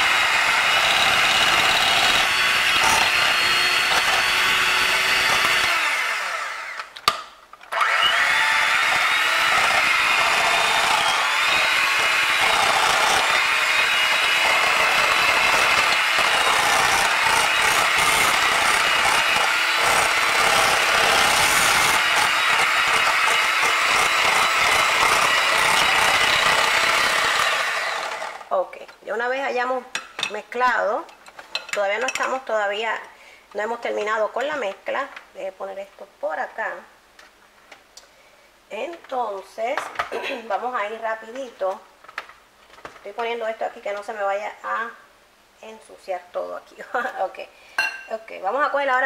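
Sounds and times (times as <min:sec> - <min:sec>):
electric hand mixer running: 0:00.0 - 0:06.8, 0:07.8 - 0:28.5.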